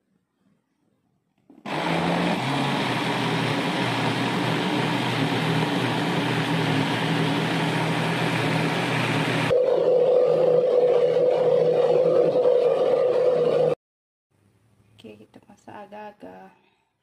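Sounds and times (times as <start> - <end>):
electric blender running: 1.6 - 13.8.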